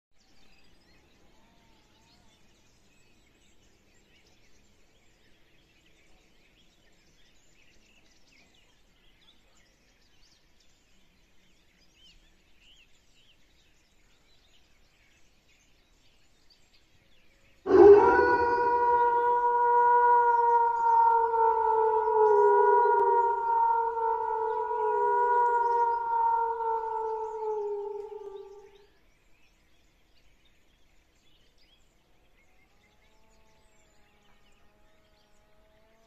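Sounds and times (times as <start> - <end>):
loud siren-like electronic tone: 17.7 - 28.7.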